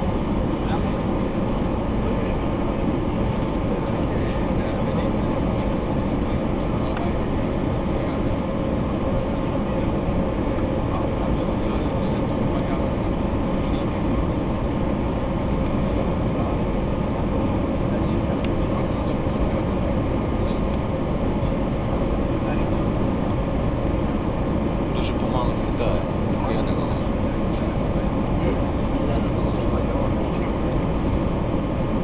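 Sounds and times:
jet engines droning: 0.0 - 32.0.

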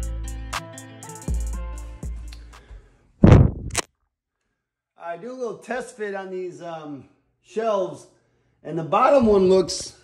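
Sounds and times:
music with heavy bass and drums: 0.0 - 2.3.

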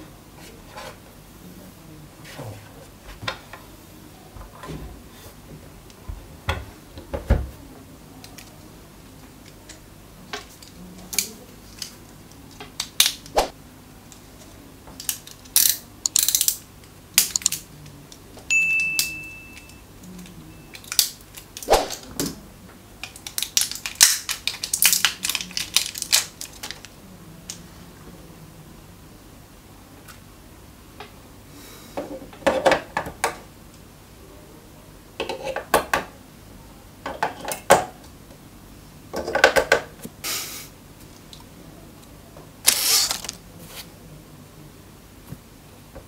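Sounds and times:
plastic shrink wrap crinkling: 23.0 - 27.0, 42.6 - 43.8.

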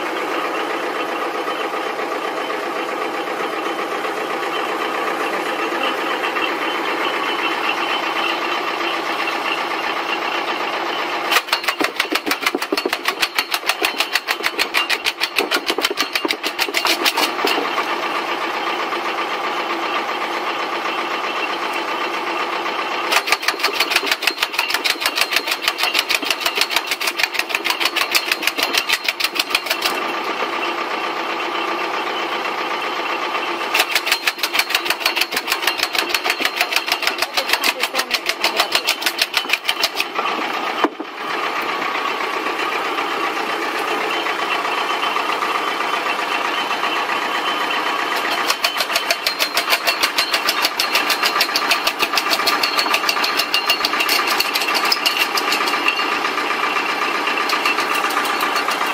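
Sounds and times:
tractor engine running: 0.0 - 58.9.

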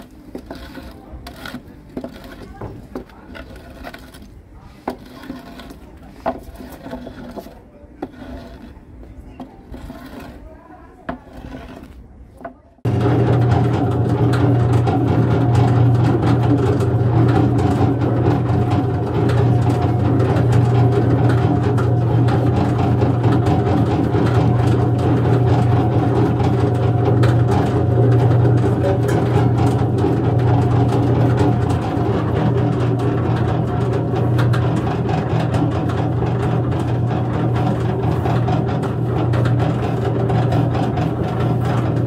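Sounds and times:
electric machine humming: 12.9 - 42.0.

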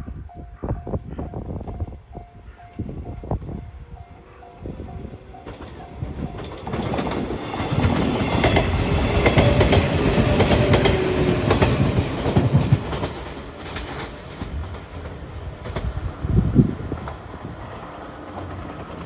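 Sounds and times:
electric train passing: 0.0 - 19.0
wheels clicking over rail joints: 4.0 - 16.1.

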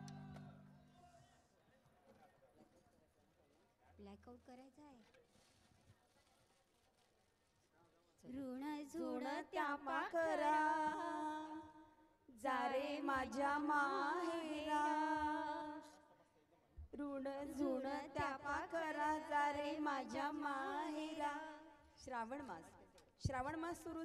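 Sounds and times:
woman singing unaccompanied: 8.3 - 15.9, 17.0 - 22.6, 23.2 - 24.0.

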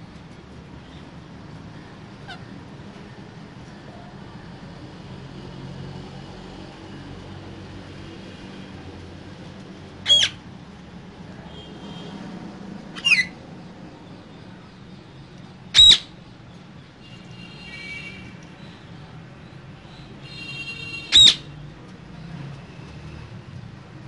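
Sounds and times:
parakeet squawking: 2.2 - 2.5, 10.0 - 10.4, 12.9 - 13.4, 15.7 - 16.1, 20.8 - 21.5.

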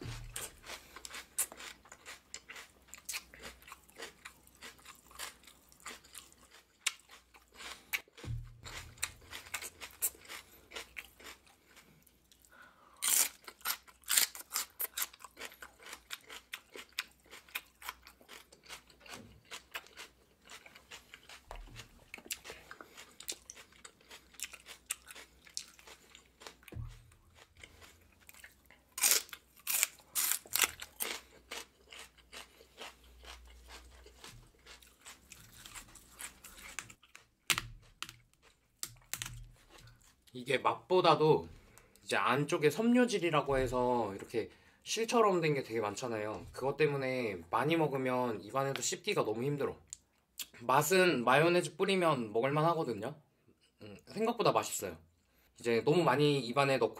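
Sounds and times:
chewing crunchy celery: 0.0 - 40.4
dull low thumps: 8.3 - 9.1.

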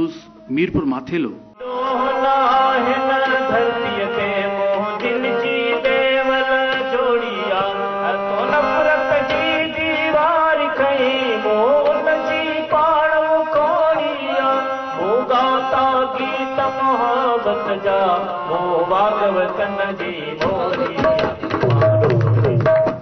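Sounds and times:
man singing: 1.4 - 22.9
drum strokes: 20.4 - 23.0.

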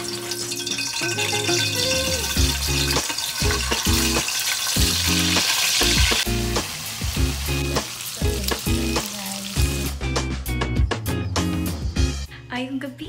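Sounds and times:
bacon sizzling in oil: 0.0 - 10.0.

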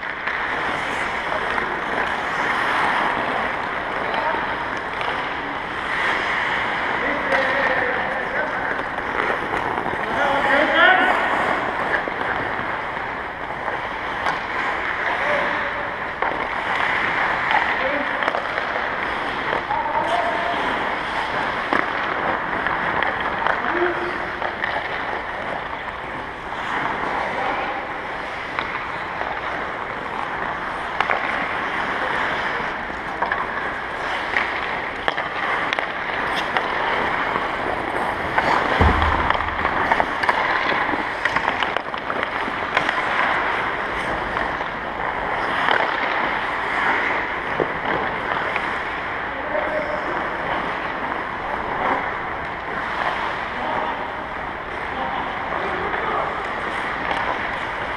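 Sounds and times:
clicks of sticks and pucks: 0.0 - 57.9
skates scraping ice: 0.0 - 57.9
dull thump: 38.7 - 40.8.

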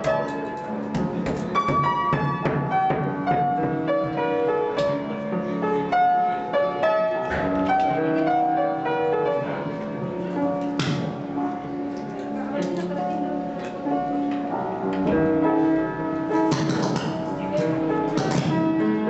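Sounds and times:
piano music: 0.0 - 19.0
hammer blows cracking nuts: 16.5 - 17.2.

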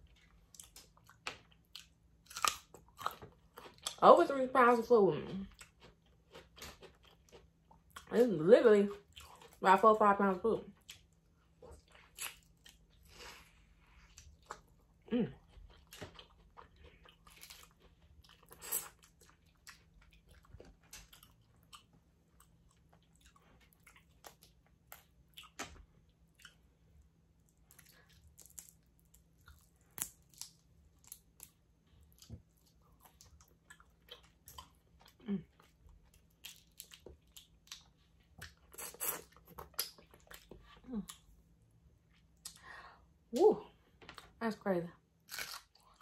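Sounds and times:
wet chewing: 15.4 - 41.4.

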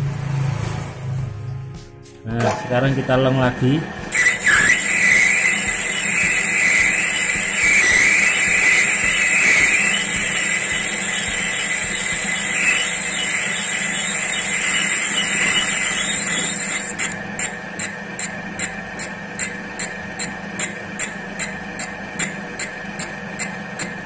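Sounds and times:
lathe humming: 3.3 - 18.3
cutting tool scraping spinning metal: 4.1 - 19.6.

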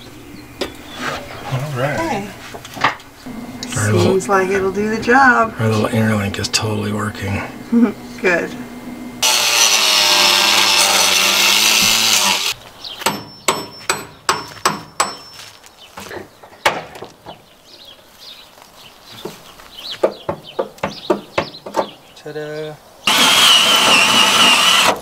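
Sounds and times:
angle grinder cutting steel: 9.2 - 12.6, 23.1 - 25.0
hammer tapping metal: 13.0 - 15.3.

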